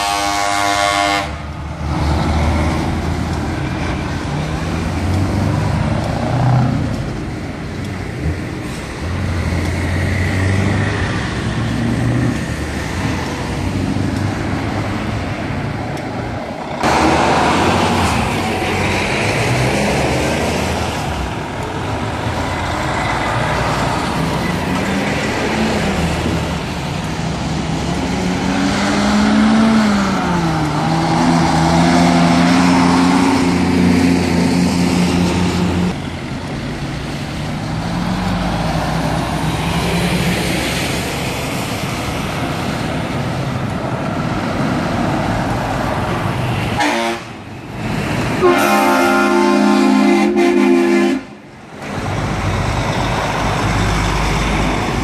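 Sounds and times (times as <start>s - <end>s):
heavy trucks driving past: 0.0s - 55.0s
traffic noise: 0.0s - 55.0s
truck engine revving and shifting gear: 8.1s - 15.0s, 16.8s - 20.9s, 22.1s - 36.0s.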